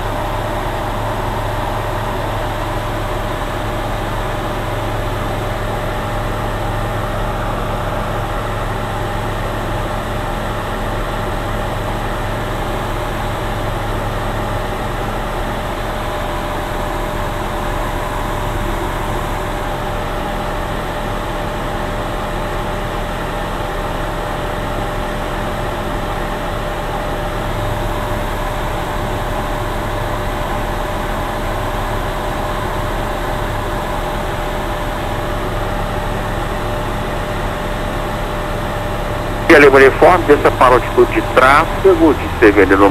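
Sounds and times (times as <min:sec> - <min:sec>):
light aircraft engine droning: 0:34.5 - 0:42.9.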